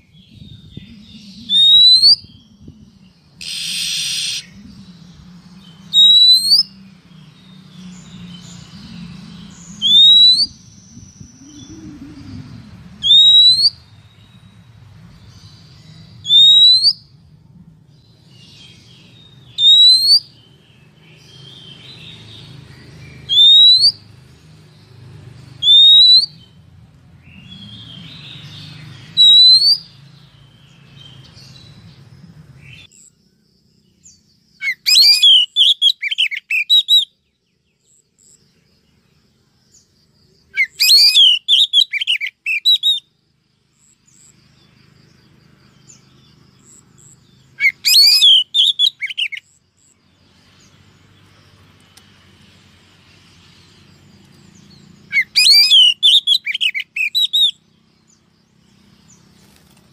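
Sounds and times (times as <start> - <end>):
bird upswept whistle call: 0.0 - 6.8, 8.0 - 12.4, 13.0 - 14.5, 16.0 - 17.2, 18.4 - 20.6, 23.0 - 24.1, 25.6 - 26.6, 27.2 - 31.7, 34.6 - 37.3, 40.5 - 43.2, 45.9 - 50.0, 54.5 - 59.8
low steady hum: 0.0 - 16.3, 16.9 - 19.6.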